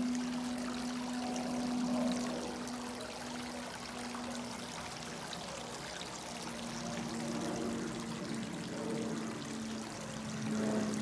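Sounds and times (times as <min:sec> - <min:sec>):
low hum: 0:00.0 - 0:05.5
creek water trickling over rocks: 0:00.0 - 0:11.0.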